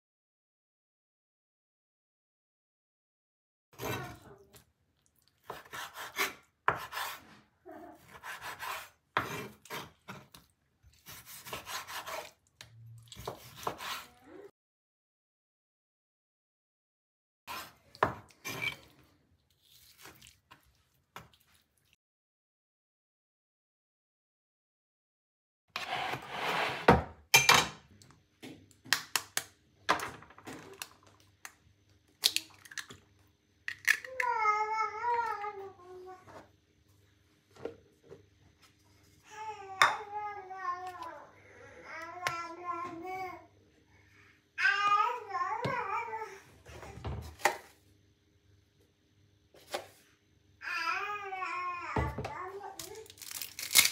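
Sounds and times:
knife slicing raw meat: 8.0 - 12.4
dish sliding across countertop: 25.8 - 27.2
eggshell cracking: 53.1 - 53.9.

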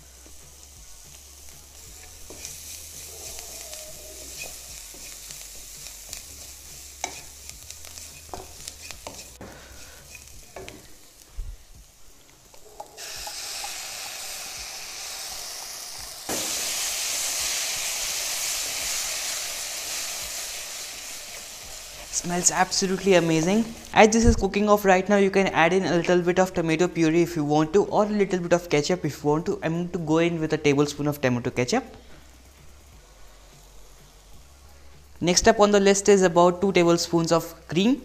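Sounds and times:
onions sizzling in oil: 0.0 - 24.4
spatula scraping pan: 2.0 - 10.9.

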